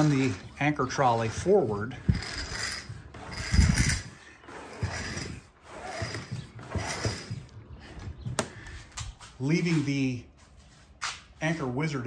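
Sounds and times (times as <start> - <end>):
rope running through pulleys: 0.0 - 7.5
anchor dragging on concrete: 0.0 - 8.5.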